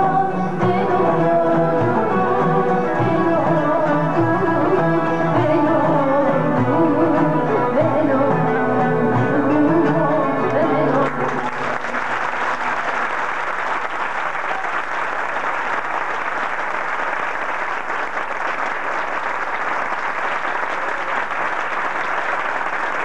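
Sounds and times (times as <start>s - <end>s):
audience applauding: 10.9s - 23.0s.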